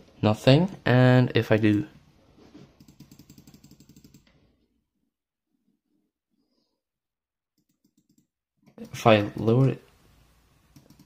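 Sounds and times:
computer mouse clicks: 2.8 - 4.4, 7.6 - 9.8, 10.7 - 11.0.

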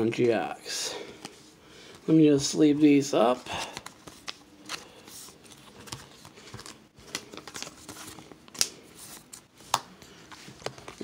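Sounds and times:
plastic card sleeves rustling: 2.7 - 11.0.

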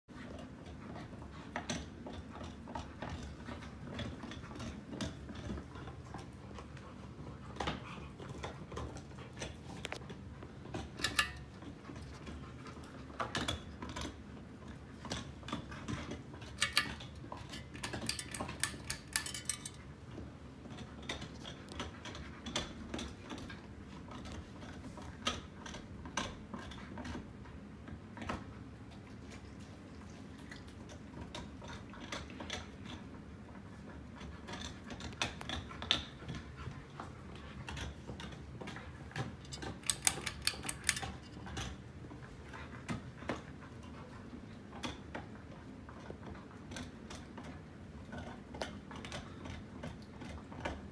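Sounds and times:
light clicking and rattling: 0.6 - 26.8, 34.2 - 45.3
ceiling fan humming: 3.0 - 22.0.

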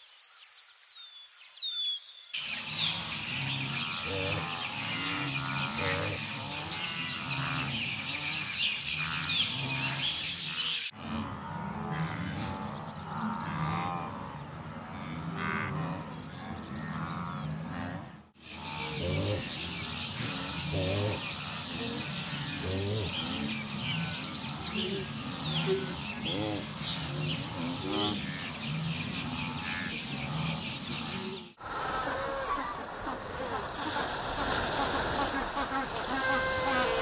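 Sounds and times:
wildebeest grunting: 2.7 - 10.1, 10.9 - 32.6.

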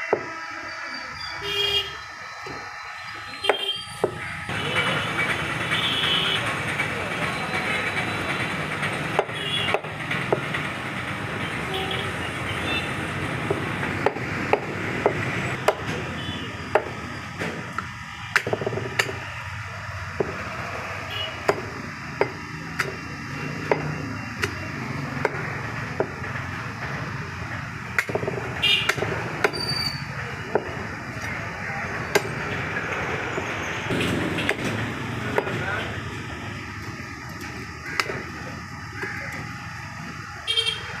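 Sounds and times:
steady background noise: 0.0 - 41.0
cleaver chopping on wood block: 13.5 - 16.0, 18.3 - 19.2, 21.4 - 23.0, 28.0 - 29.7, 38.0 - 38.2.

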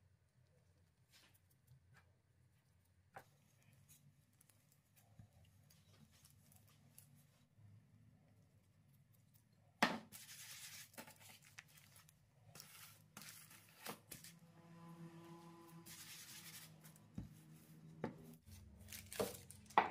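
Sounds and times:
papery rustling: 10.1 - 14.4, 15.8 - 19.9.

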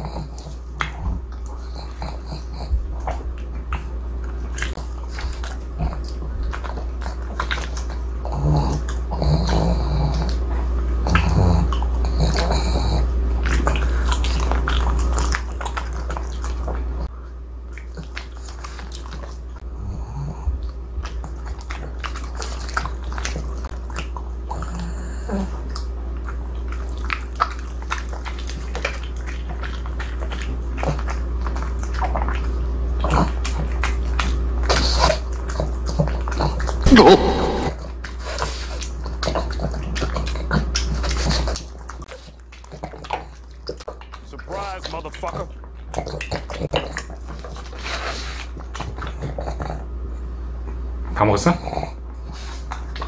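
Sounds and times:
dog chewing and lip smacking: 0.0 - 19.6, 20.5 - 53.0
short pitched sounds: 36.9 - 37.8.

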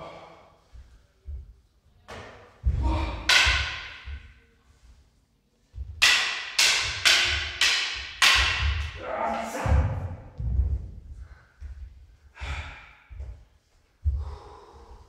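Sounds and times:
wooden swords clacking: 2.1 - 4.4, 5.8 - 10.7.

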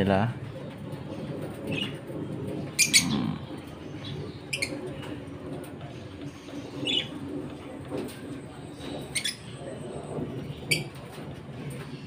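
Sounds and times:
birds chirping sharply: 0.0 - 7.5.

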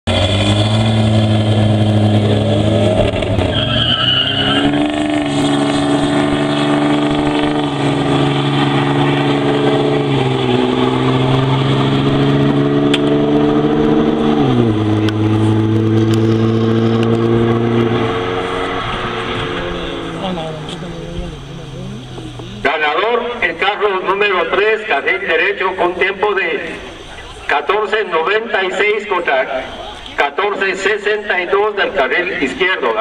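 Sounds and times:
drag racing engines running hard: 0.1 - 3.7, 4.3 - 32.7
high squeal: 3.3 - 5.6.

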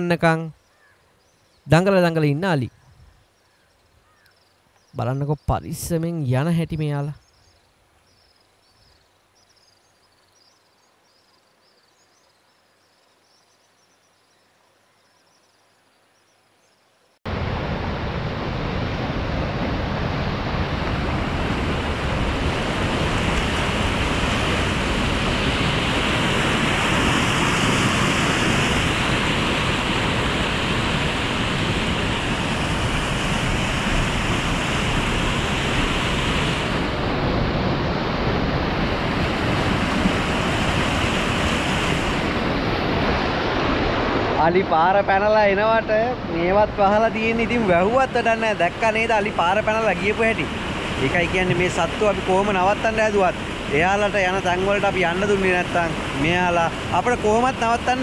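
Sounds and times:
rushing water through sluice gates: 20.7 - 37.3, 38.0 - 44.5, 47.1 - 58.0.

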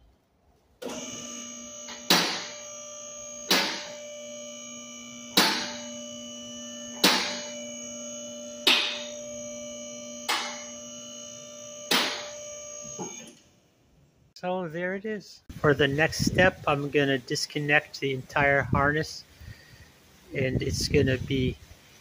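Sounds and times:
hydraulic pump running: 0.8 - 13.4.

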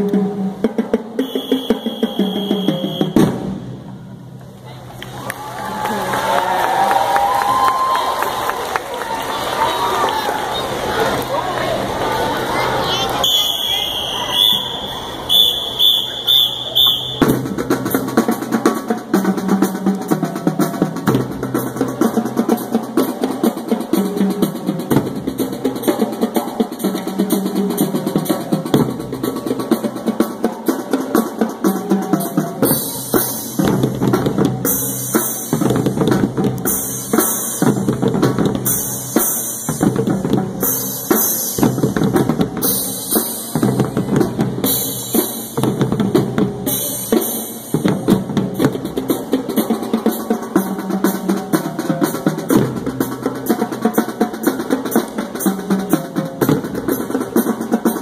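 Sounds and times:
marching drumline playing: 0.0 - 58.0
short high-pitched tones: 1.2 - 3.2, 13.2 - 17.3.

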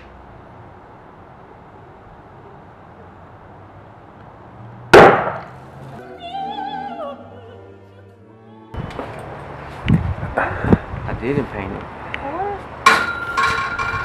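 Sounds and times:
bottle bursting with loud bang: 5.0 - 5.4
woman singing operatic high note: 6.0 - 8.7.

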